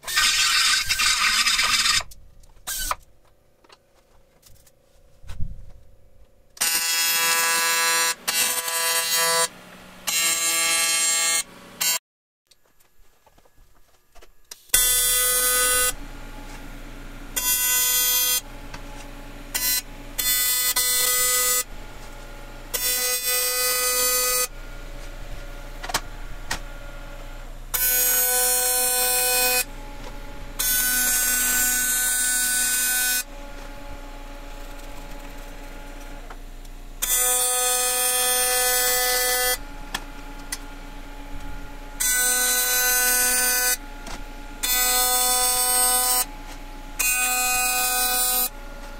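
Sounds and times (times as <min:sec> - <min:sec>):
welding arc buzzing: 0:00.0 - 0:03.0, 0:06.6 - 0:12.0, 0:14.6 - 0:48.9
low steady hum: 0:01.1 - 0:06.7, 0:12.5 - 0:44.8.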